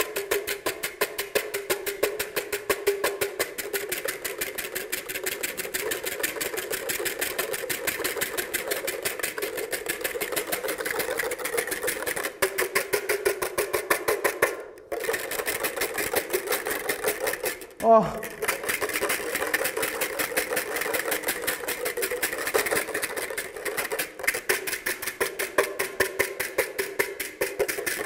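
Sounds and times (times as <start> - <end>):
whisk clicking in glass bowl: 15.0 - 28.0.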